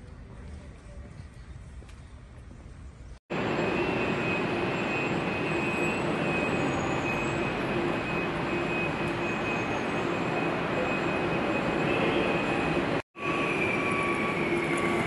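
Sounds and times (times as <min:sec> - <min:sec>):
machine whining and humming: 0:03.3 - 0:15.0.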